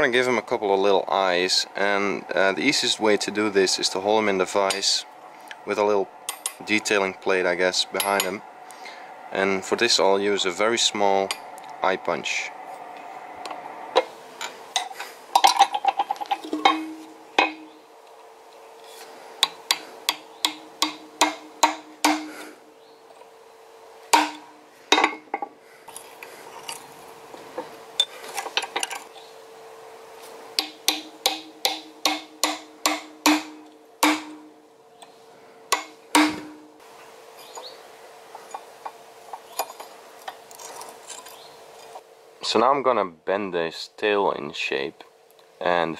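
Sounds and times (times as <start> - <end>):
hammer tapping punch into steel: 19.4 - 22.3, 24.1 - 25.5, 30.6 - 34.5.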